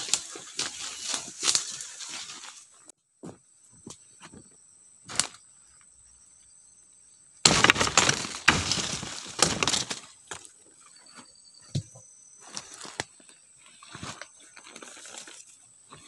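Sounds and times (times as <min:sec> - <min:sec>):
tree branches rustling: 0:00.0 - 0:03.0, 0:07.4 - 0:10.7, 0:12.4 - 0:15.6
high insect drone: 0:00.0 - 0:16.0
twigs cracking: 0:07.4 - 0:10.5.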